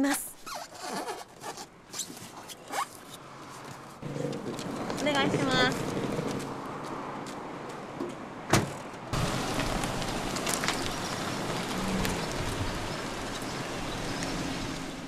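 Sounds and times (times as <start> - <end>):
car driving away: 9.2 - 15.0.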